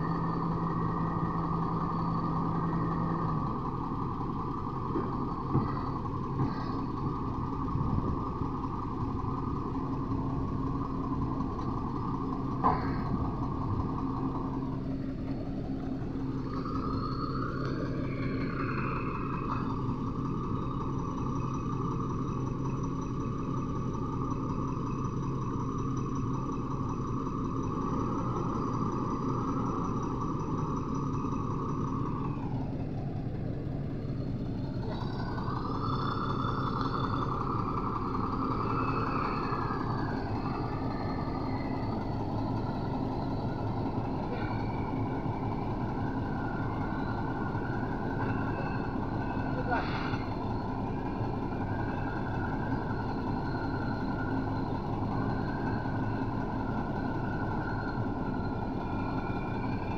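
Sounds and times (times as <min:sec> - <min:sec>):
diesel engine idling: 0:00.0 - 0:59.9
sharp engine knocks: 0:12.6 - 0:13.3.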